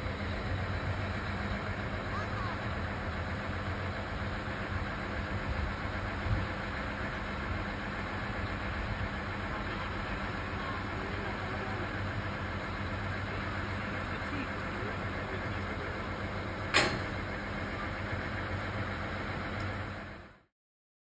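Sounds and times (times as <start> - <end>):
locomotive engine idling: 0.0 - 20.5.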